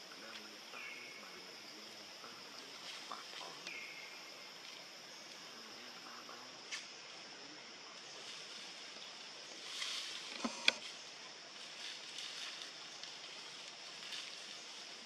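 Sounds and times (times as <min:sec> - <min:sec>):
steady high hiss: 0:00.0 - 0:15.0
brief rustle: 0:09.6 - 0:11.0.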